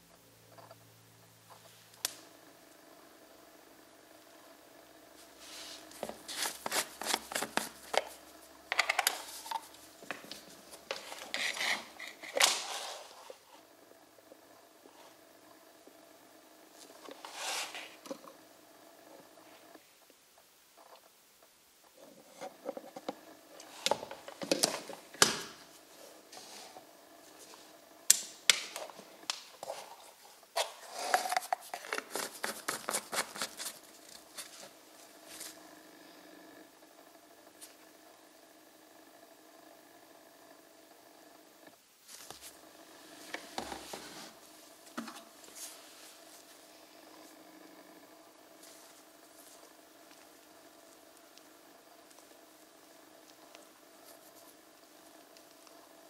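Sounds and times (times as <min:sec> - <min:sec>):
plastic bottle and cup rustling: 0:05.7 - 0:13.2, 0:29.6 - 0:34.7.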